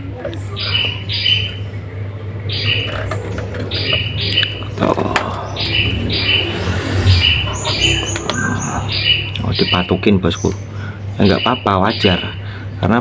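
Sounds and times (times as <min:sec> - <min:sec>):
bird chirping high notes: 0:03.7 - 0:10.5.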